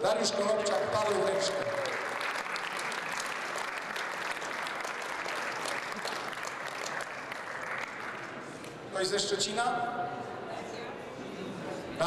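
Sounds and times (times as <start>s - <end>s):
audience applauding: 0.8s - 8.7s.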